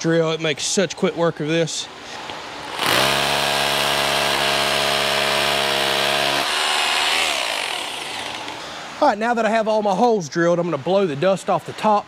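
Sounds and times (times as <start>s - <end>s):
drill boring into concrete: 2.8s - 8.5s.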